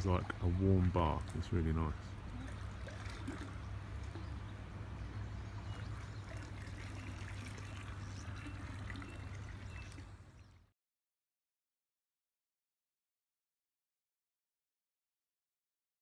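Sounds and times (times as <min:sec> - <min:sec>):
pool water trickling and pouring: 0:00.0 - 0:10.7.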